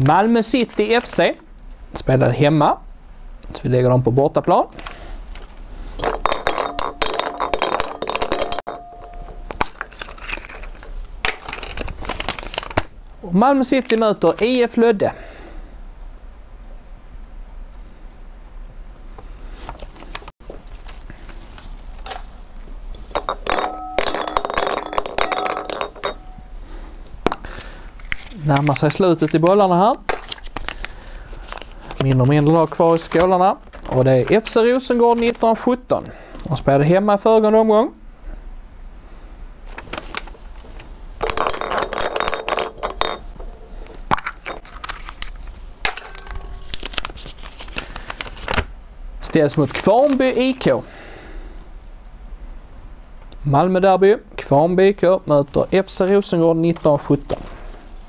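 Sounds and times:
paper slips rustling: 0:04.8 - 0:12.8, 0:27.4 - 0:35.6, 0:39.7 - 0:43.5, 0:44.2 - 0:48.6, 0:49.5 - 0:50.8
balls rattling in glass bowl: 0:06.0 - 0:09.0, 0:23.0 - 0:26.4, 0:41.2 - 0:43.6, 0:45.9 - 0:47.2.

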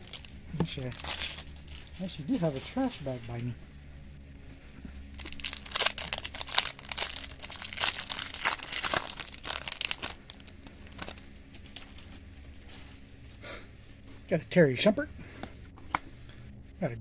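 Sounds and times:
foil wrapper crinkling and tearing: 0:00.0 - 0:03.0, 0:05.1 - 0:12.9.

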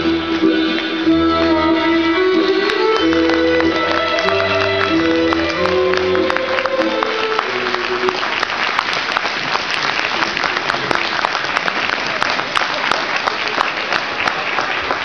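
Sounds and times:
music held notes: 0:00.0 - 0:08.4
audience applause: 0:02.6 - 0:15.0.

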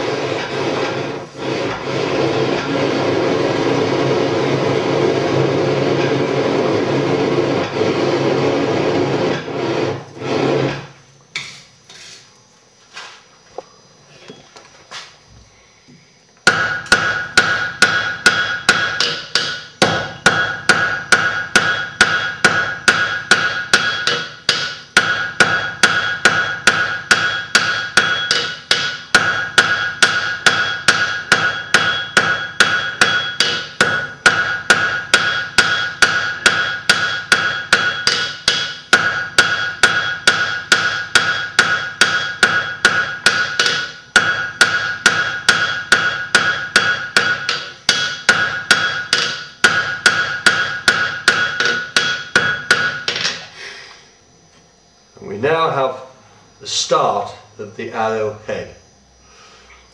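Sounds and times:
hammer striking iron on anvil: 0:16.4 - 0:53.5
anvil ringing: 0:16.5 - 0:53.4.

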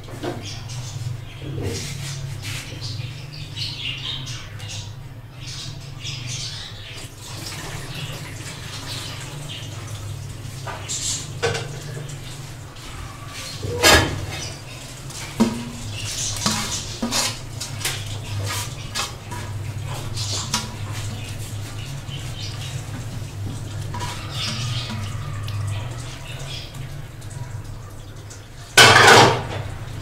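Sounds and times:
metal spoon scraping a pot: 0:16.3 - 0:20.6.

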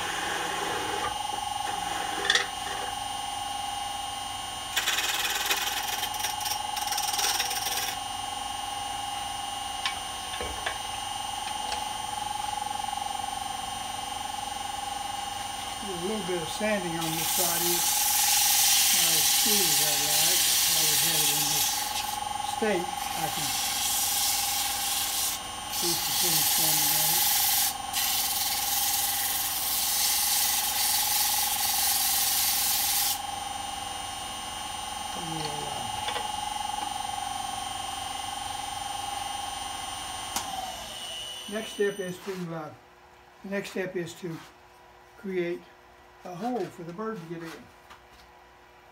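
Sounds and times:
sandpaper hissing on wood: 0:00.0 - 0:01.0, 0:16.8 - 0:22.2, 0:23.0 - 0:33.2
turning tool scraping wood: 0:00.0 - 0:03.0, 0:16.0 - 0:31.1
wood lathe whining: 0:00.0 - 0:03.8, 0:04.7 - 0:08.1, 0:13.5 - 0:33.3, 0:35.0 - 0:37.0, 0:38.6 - 0:42.4.

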